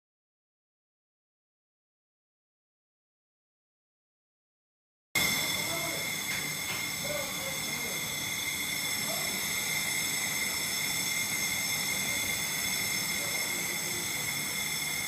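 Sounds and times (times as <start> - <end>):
laser cutter hiss and whine: 5.2 - 15.0.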